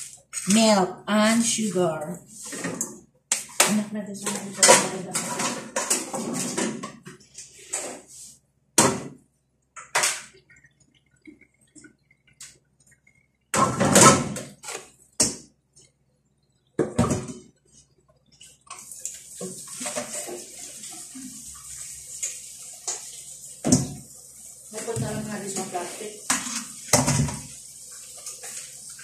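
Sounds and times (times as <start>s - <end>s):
kitchenware knocking and clattering: 3.6s - 7.1s, 26.4s - 27.5s
water hissing: 18.7s - 29.0s.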